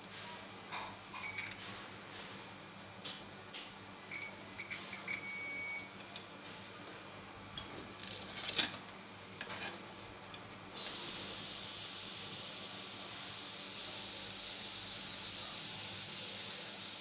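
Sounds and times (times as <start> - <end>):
steady hiss: 10.8 - 17.0.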